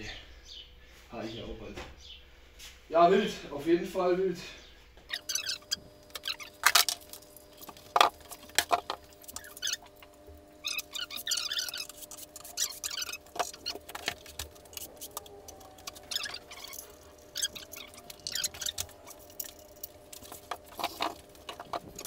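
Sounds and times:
faint hum: 0.0s - 22.0s
packaging rustling: 11.2s - 22.0s.

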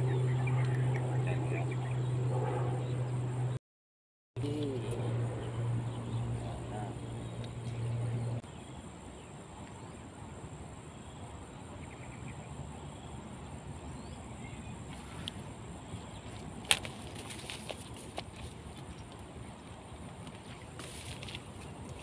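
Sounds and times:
low hum: 0.0s - 3.6s, 4.4s - 8.5s.

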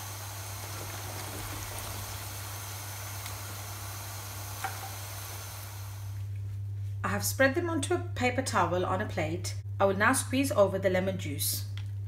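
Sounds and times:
oil sizzling while deep-frying: 0.0s - 6.2s.

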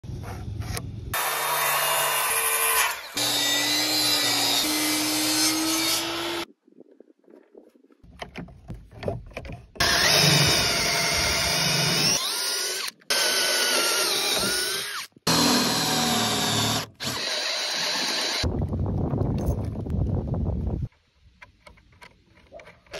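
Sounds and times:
electric drill boring through wood: 1.2s - 6.5s, 9.8s - 18.5s.

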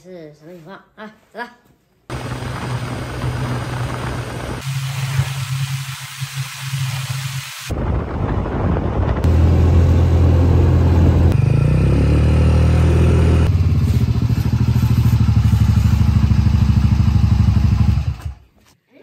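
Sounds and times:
motorcycle engine idling: 13.5s - 18.4s.

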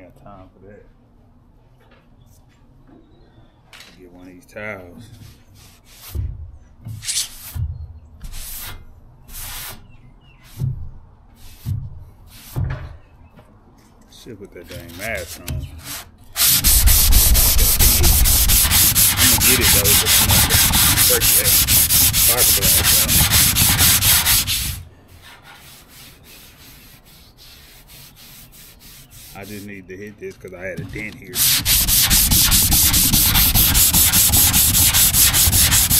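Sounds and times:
sandpaper rasping: 14.7s - 29.8s, 31.3s - 35.9s.

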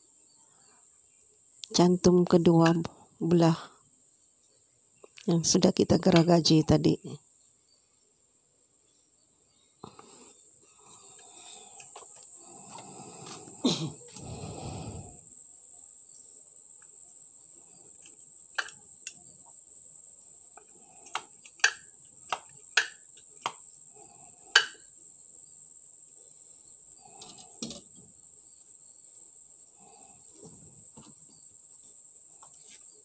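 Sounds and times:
cricket chirping: 0.0s - 33.0s
wooden boards clicking and knocking: 21.1s - 23.6s, 24.6s - 24.8s.

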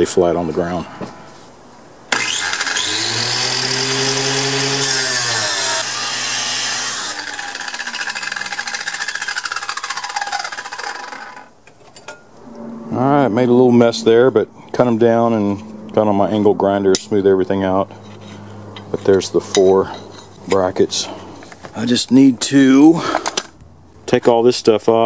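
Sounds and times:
chop saw cutting steel: 2.1s - 11.5s
motor whine spinning down: 2.1s - 11.5s.

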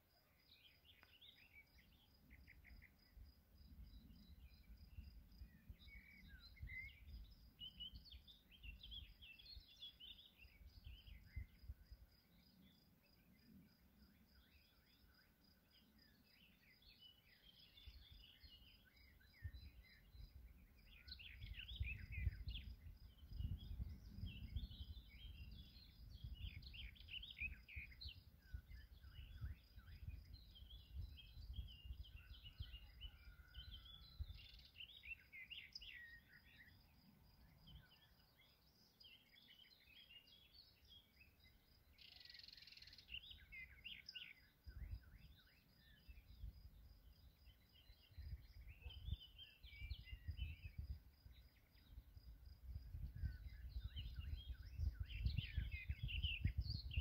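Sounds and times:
birds chirping and singing: 3.7s - 11.8s, 14.3s - 57.0s.

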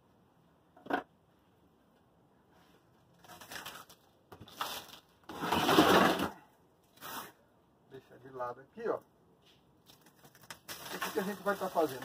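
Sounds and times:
soil crumbling: 9.8s - 12.0s
foliage rustling: 10.3s - 12.0s.

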